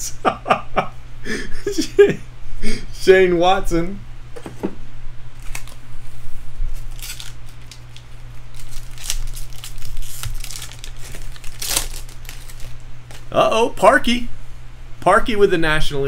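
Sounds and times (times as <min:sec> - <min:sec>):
foil wrapper tearing and crinkling: 0:05.4 - 0:05.8, 0:06.8 - 0:13.3.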